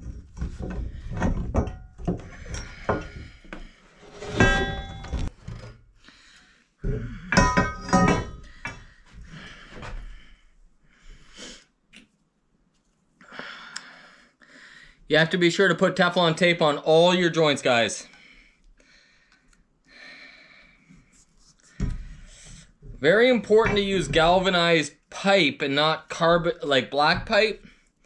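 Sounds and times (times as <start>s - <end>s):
metal pipe fittings clanking: 0.0s - 5.8s, 7.3s - 9.0s, 22.8s - 24.7s
ringing metal: 4.1s - 5.3s, 7.3s - 8.6s.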